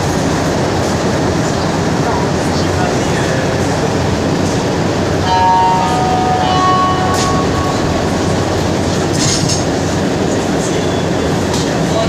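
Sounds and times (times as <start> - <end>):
metro car hum and rumble: 0.0 - 12.0
steady held tones: 5.1 - 11.3.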